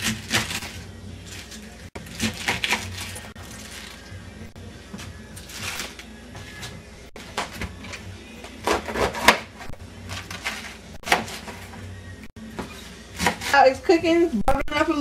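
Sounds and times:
cabbage leaves tearing: 0.0 - 4.1.

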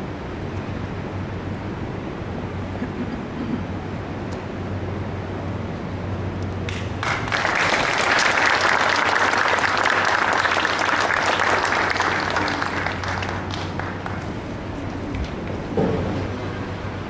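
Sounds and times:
audience applauding: 6.7 - 15.6.

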